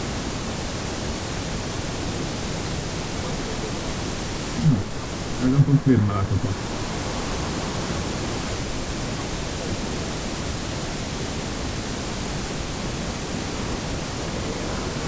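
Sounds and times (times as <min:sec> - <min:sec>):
steady rushing noise: 0:04.4 - 0:08.9.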